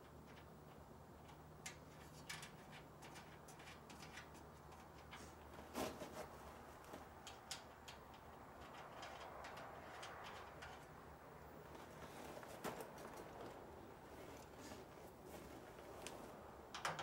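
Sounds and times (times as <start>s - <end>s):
metal clicks and taps: 7.2s - 10.9s, 16.7s - 17.0s.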